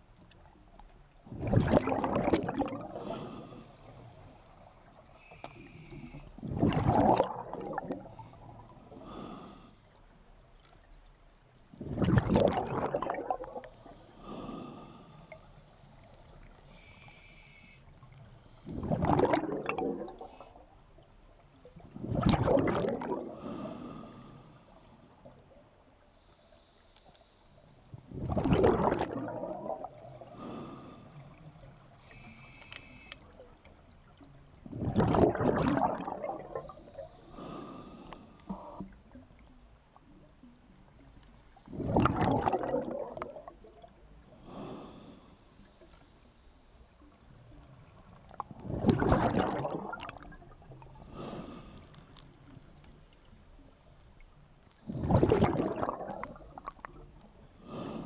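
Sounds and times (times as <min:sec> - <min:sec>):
exhaled bubbles rushing: 0:01.2 - 0:03.3, 0:06.4 - 0:08.5, 0:11.8 - 0:13.8, 0:18.7 - 0:20.4, 0:21.7 - 0:23.4, 0:28.0 - 0:30.2, 0:34.6 - 0:37.1, 0:41.7 - 0:44.0, 0:48.4 - 0:51.0, 0:54.8 - 0:57.1
regulator hiss: 0:16.7 - 0:17.9, 0:32.1 - 0:33.2.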